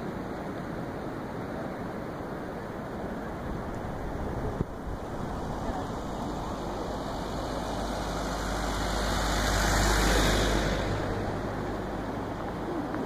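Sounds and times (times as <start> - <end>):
surf: 0.0 - 13.0
wind: 0.0 - 13.0
vehicle driving past: 5.0 - 13.0.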